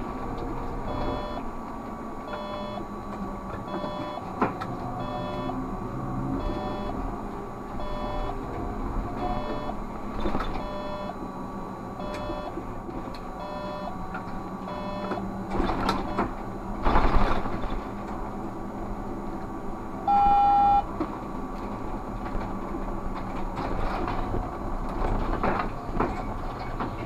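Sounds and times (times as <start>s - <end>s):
trolleybus running hum: 0.0s - 27.0s
loud steady beep: 0.9s - 1.4s, 2.3s - 2.9s, 3.7s - 4.3s, 5.0s - 5.6s, 6.4s - 7.0s, 7.8s - 8.4s, 9.2s - 9.8s, 10.6s - 11.2s, 12.0s - 12.6s, 13.4s - 14.0s, 14.6s - 15.2s, 20.1s - 20.9s
short electronic beeps: 0.9s - 1.4s, 2.3s - 2.9s, 3.7s - 4.3s, 5.0s - 5.6s, 6.4s - 7.0s, 7.8s - 8.4s, 9.2s - 9.8s, 10.6s - 11.2s, 12.0s - 12.6s, 13.4s - 14.0s, 14.7s - 15.2s, 20.1s - 20.9s.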